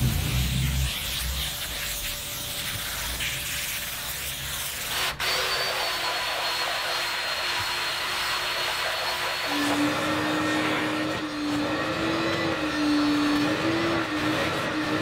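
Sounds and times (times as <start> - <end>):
spray wand hissing: 0.0 - 4.9
brush scrubbing carpet: 0.0 - 5.0, 6.2 - 15.0
cordless drill motor whine: 5.2 - 14.9.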